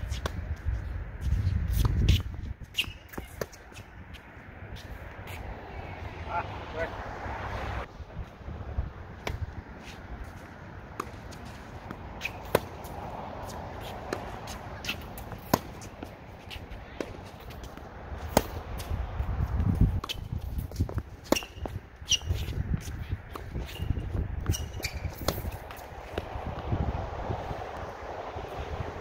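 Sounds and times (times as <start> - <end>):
wind gusts on microphone: 0.0 - 29.0
tennis balls struck by racquets: 9.1 - 26.8.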